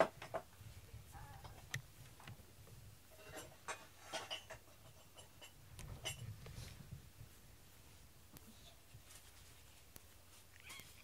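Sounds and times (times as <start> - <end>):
cat moving on blanket: 8.9 - 11.0.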